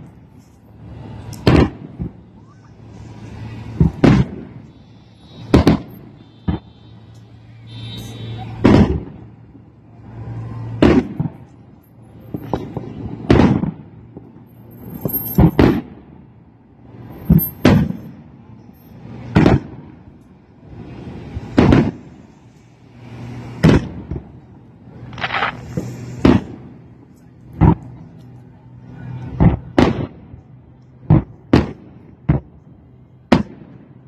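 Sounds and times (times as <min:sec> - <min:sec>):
fireworks shells booming: 0:01.2 - 0:02.2, 0:03.7 - 0:09.4, 0:10.6 - 0:16.2, 0:17.0 - 0:18.2, 0:18.9 - 0:20.0, 0:20.9 - 0:22.3, 0:23.4 - 0:28.0, 0:29.3 - 0:34.0.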